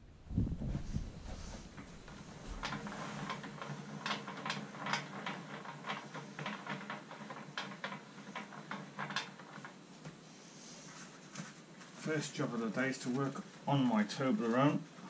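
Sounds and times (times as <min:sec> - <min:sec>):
workbench clicks and knocks: 0:01.8 - 0:09.7.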